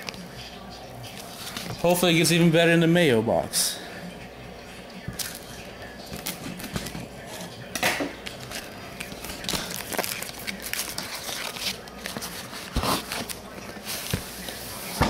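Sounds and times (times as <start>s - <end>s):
plastic shrink wrap crinkling: 8.2s - 14.8s.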